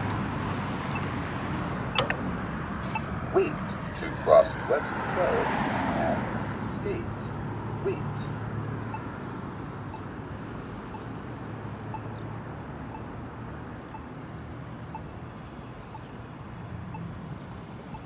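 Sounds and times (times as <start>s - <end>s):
street traffic rumble: 0.0s - 18.0s
faint ticking locator tone: 0.9s - 1.2s, 1.9s - 2.2s, 9.9s - 10.2s, 10.8s - 11.2s, 11.8s - 13.2s, 13.8s - 14.2s, 14.8s - 16.3s, 17.8s - 18.0s.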